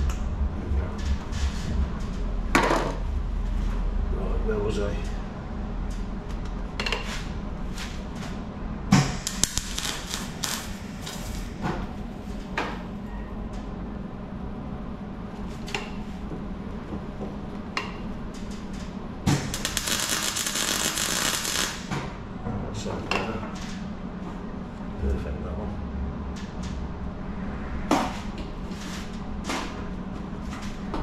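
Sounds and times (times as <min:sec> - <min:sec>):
steady low hum: 0:00.0 - 0:31.0
welder crackling: 0:09.0 - 0:12.0, 0:19.3 - 0:21.9.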